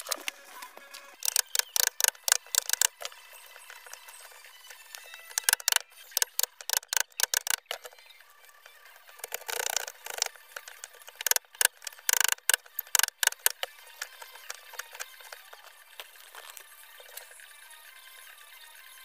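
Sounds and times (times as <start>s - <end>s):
chisel clicking on wood: 1.2s - 8.0s, 9.2s - 15.4s.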